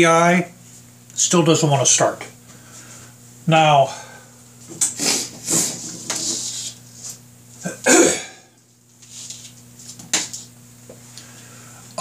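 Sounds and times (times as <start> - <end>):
man coughing: 7.6 - 8.5.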